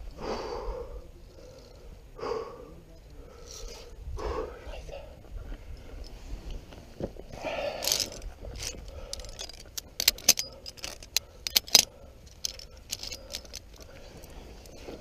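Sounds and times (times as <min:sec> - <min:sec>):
carabiners clinking on steel cable: 0:07.4 - 0:15.0.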